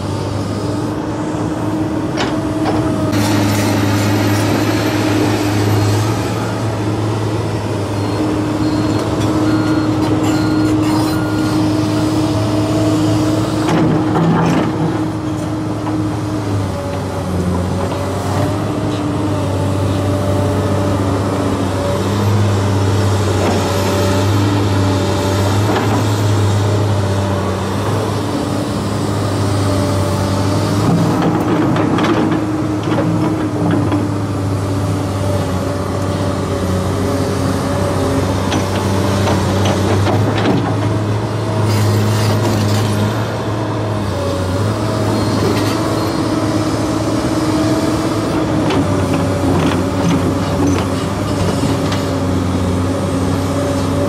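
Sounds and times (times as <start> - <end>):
excavator engine and hydraulics: 0.0 - 54.0.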